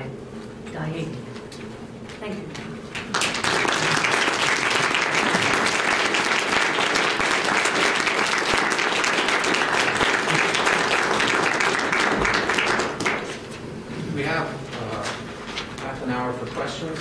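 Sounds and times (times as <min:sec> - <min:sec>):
audience applauding: 0:02.9 - 0:13.6.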